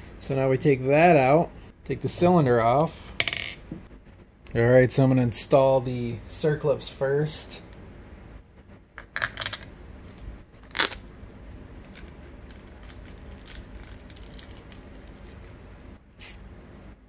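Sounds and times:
plastic bag crinkling: 11.7 - 15.7.

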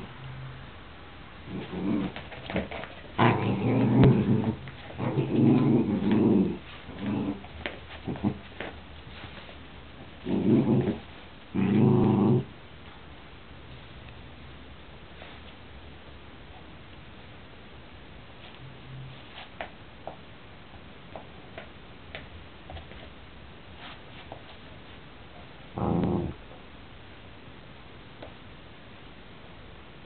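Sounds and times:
dogs play growling: 1.4 - 8.8, 10.0 - 12.6, 25.7 - 26.6.

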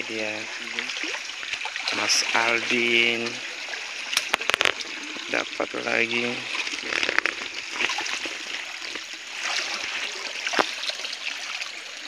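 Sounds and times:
stream trickling over rocks: 0.0 - 12.0
splashes from movement in water: 6.4 - 12.0.

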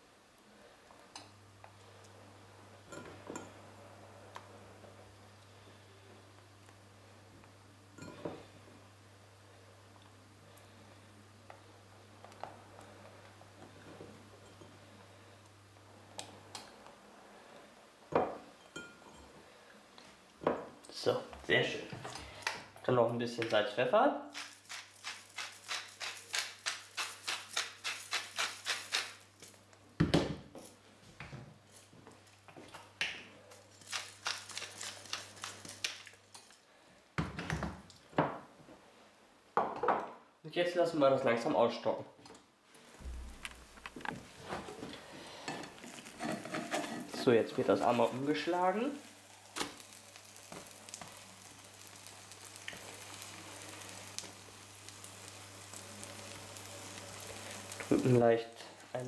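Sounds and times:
butter sizzling in a frying pan: 24.4 - 29.5, 33.6 - 36.5, 45.0 - 59.0.

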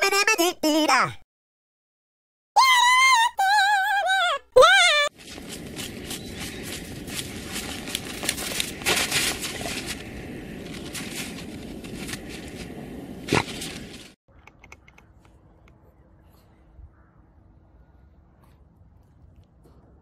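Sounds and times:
dogs digging in crusty snow: 5.2 - 14.1
faint clicks: 14.3 - 15.8.

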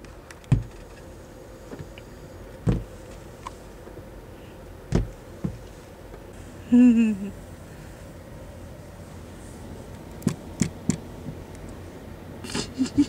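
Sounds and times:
dull thumps on car windshield: 0.5 - 0.7, 2.6 - 2.9, 4.9 - 5.6.

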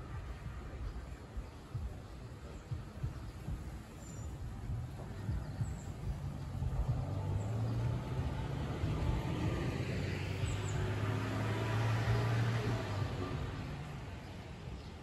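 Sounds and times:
car driving past: 6.1 - 14.8.

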